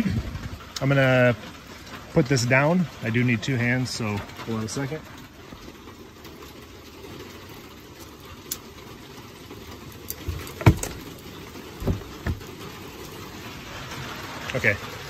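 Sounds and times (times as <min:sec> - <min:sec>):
wooden box lid thumping shut: 0:10.3 - 0:11.0, 0:11.8 - 0:12.4.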